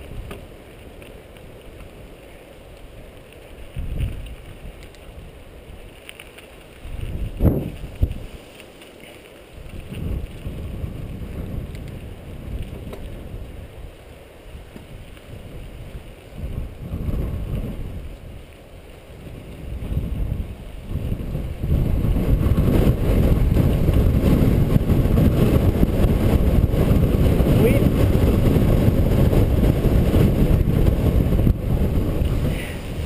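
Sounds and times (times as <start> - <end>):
wind buffeting microphone: 0.0 - 8.5, 9.4 - 33.0
bike tyre rumble: 0.0 - 33.0.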